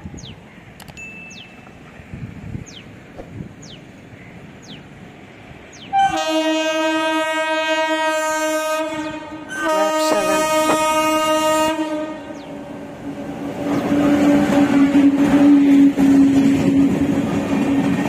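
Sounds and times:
train rumbling on rails: 0.0s - 18.0s
train air horn blasts: 5.9s - 12.8s.

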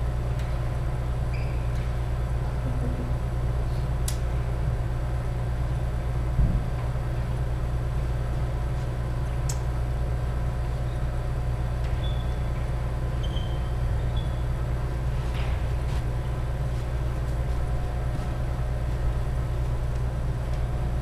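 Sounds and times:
steady low hum: 0.0s - 21.0s
shoe squeaks on wooden floor: 1.3s - 1.9s, 12.0s - 14.5s.

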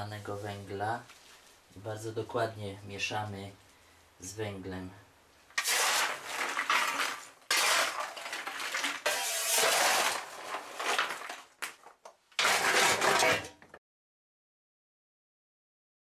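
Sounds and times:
coal shovelled into boiler: 5.6s - 11.7s, 12.4s - 13.7s
coal lumps clattering and scraping: 5.6s - 13.8s.

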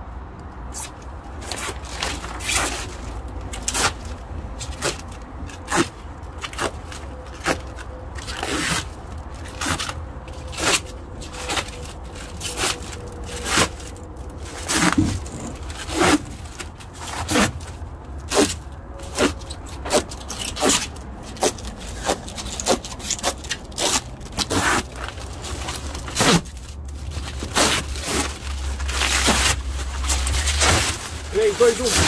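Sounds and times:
plastic film ripping off: 19.2s - 32.0s.

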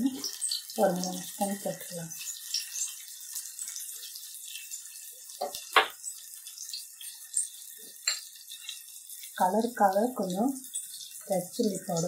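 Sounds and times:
metal spoon clinking ceramic bowl: 8.0s - 8.7s.

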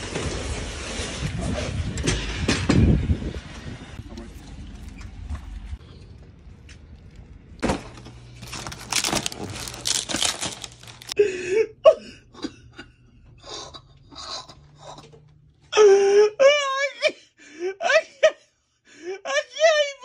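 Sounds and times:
plastic wrap and cardboard tearing: 7.6s - 11.2s.

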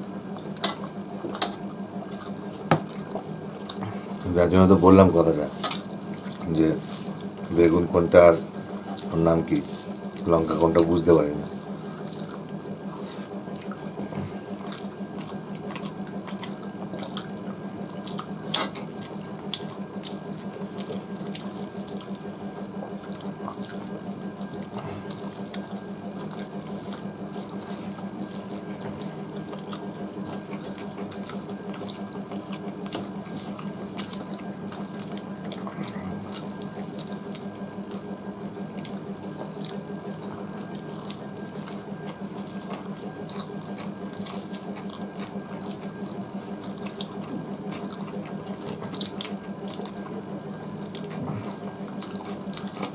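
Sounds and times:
chewing smacks: 0.3s - 52.9s
low hum: 35.4s - 38.4s.

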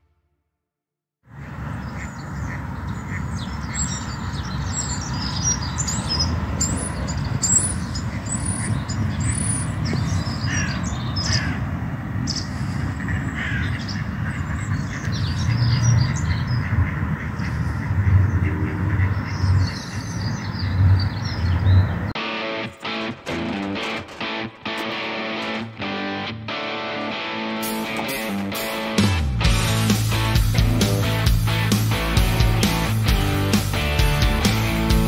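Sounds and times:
harsh low bird calls: 1.3s - 22.1s.

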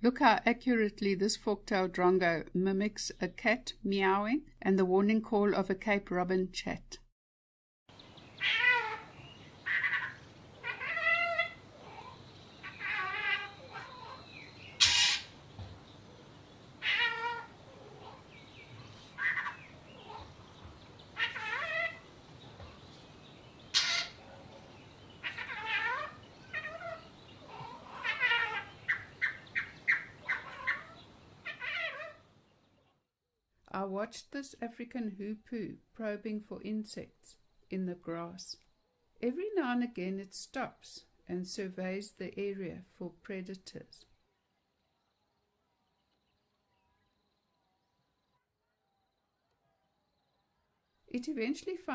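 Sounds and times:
bird calling mimicking: 8.4s - 15.4s, 19.1s - 20.4s, 21.1s - 22.1s, 23.7s - 24.2s, 25.2s - 32.2s.

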